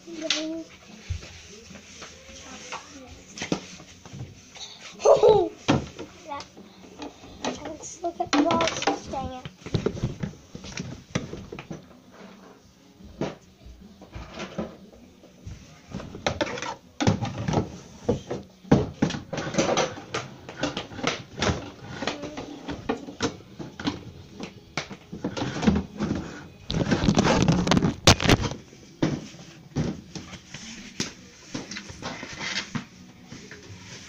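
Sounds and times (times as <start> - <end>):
knocks clatters and thumps: 5.7 - 12.0, 15.9 - 30.4.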